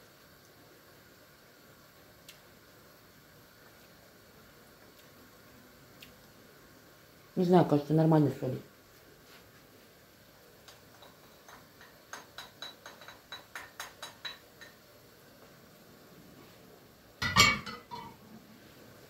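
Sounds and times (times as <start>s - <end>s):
cookware clatter: 10.9s - 14.8s, 17.2s - 18.2s
metal utensil clinking on pot: 10.9s - 14.8s, 17.2s - 18.2s.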